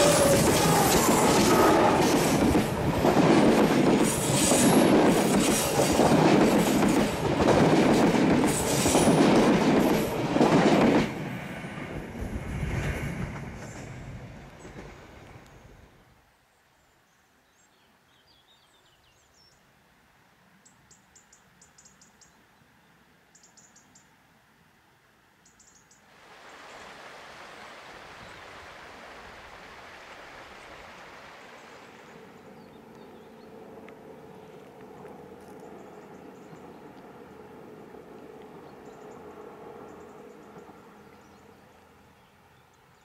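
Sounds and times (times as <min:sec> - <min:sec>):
train rumble: 0:00.0 - 0:16.0
rushing outdoor background noise: 0:00.0 - 0:16.8, 0:19.6 - 0:43.0.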